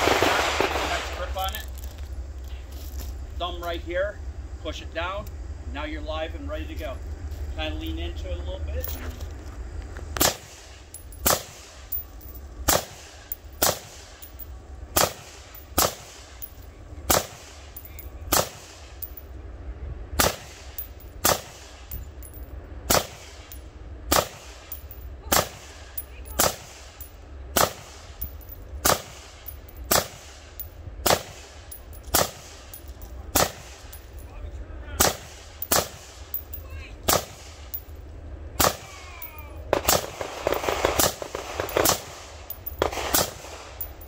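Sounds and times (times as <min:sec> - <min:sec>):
rifle firing single shots: 0:12.7 - 0:14.2, 0:15.0 - 0:16.4, 0:17.1 - 0:17.6, 0:20.2 - 0:21.9, 0:22.9 - 0:27.0, 0:27.6 - 0:28.2, 0:28.8 - 0:32.7, 0:33.3 - 0:34.0, 0:35.0 - 0:37.8, 0:39.7 - 0:43.8.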